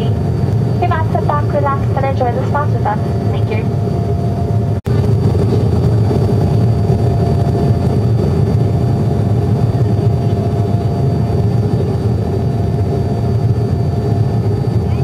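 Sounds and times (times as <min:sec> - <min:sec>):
airliner engine drone: 0:00.0 - 0:15.0.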